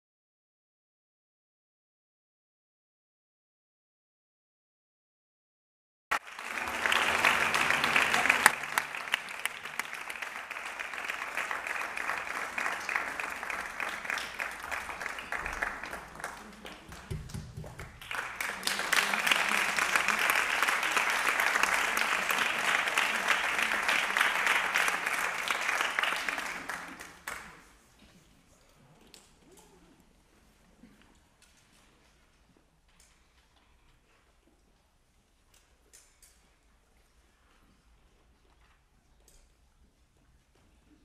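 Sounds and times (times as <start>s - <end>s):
audience applauding: 6.1s - 27.7s.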